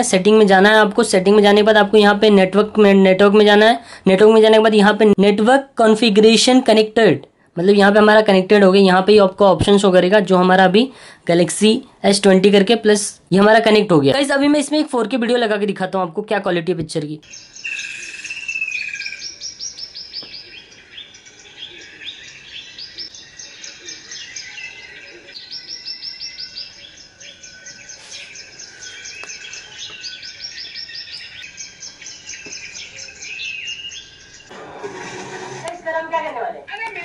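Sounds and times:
birds chirping and trilling: 17.2s - 37.0s.

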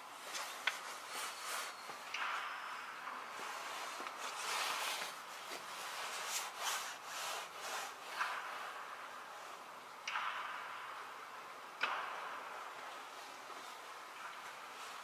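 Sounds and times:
rustling and scuffing: 0.2s - 2.1s, 3.4s - 8.4s.

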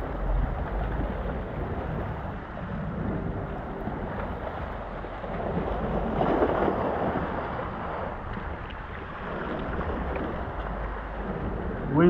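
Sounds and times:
waves washing against rocks: 0.0s - 12.0s
wind on microphone: 0.0s - 12.0s.

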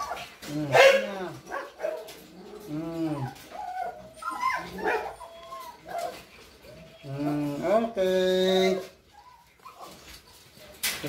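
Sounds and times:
puppies whining and yelping: 0.0s - 0.5s, 1.9s - 7.8s, 8.8s - 10.7s.

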